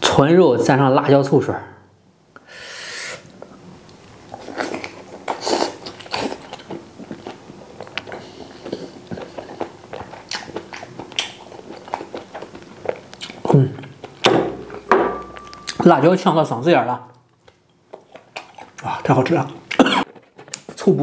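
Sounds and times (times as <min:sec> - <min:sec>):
person chewing with wet smacking: 0:03.8 - 0:15.9, 0:17.1 - 0:20.9.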